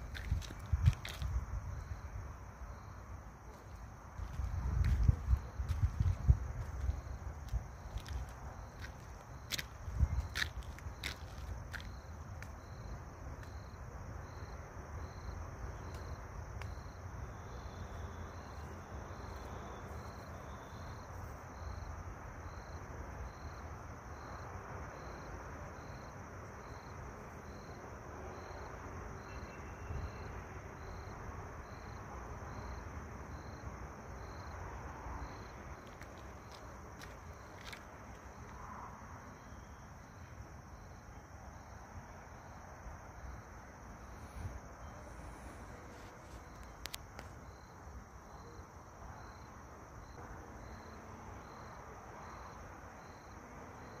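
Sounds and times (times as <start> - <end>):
low wind rumble: 0.0 - 13.5
high insect hum: 0.0 - 54.0
insects chirping: 0.0 - 54.0.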